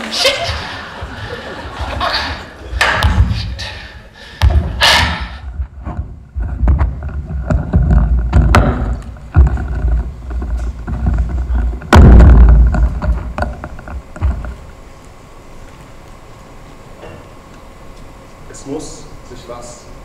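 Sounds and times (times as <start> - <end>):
microphone rubbing rumble: 0.4 - 14.9.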